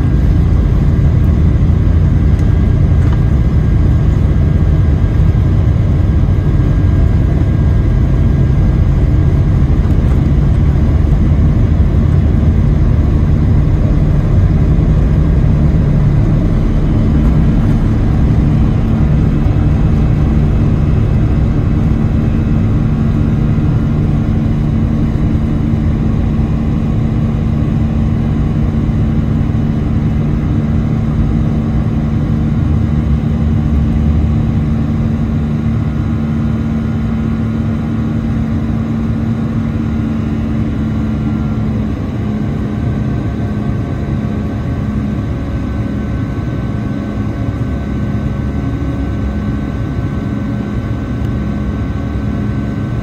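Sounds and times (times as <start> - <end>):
jet engines roaring: 0.0 - 53.0
wheels rumbling on runway: 0.0 - 53.0.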